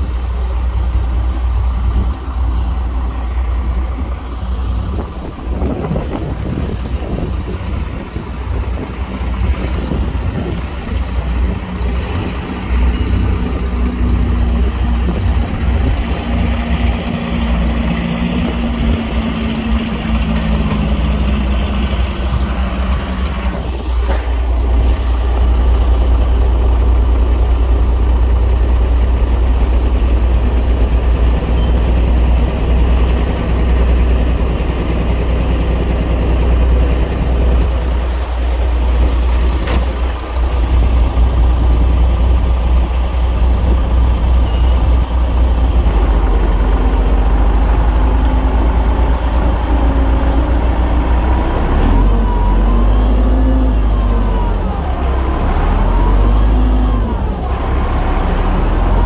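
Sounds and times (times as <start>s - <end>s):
heavy diesel engine rumbling: 0.0s - 59.0s.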